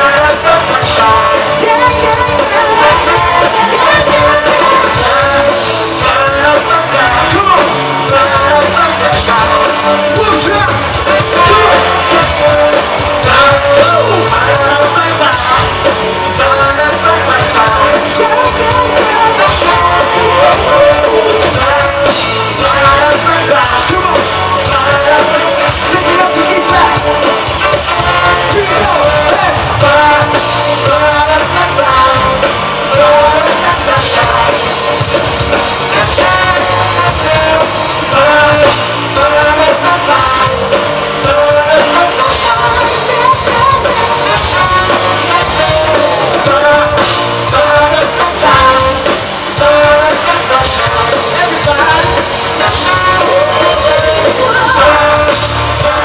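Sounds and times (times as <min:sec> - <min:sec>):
live funk rock band: 0:00.0 - 0:56.0.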